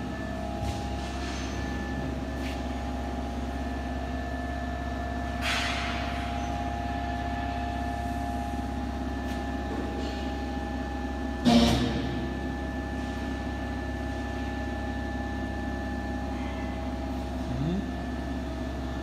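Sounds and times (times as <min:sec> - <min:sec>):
mechanical hum of pulley rig: 0:00.0 - 0:19.0.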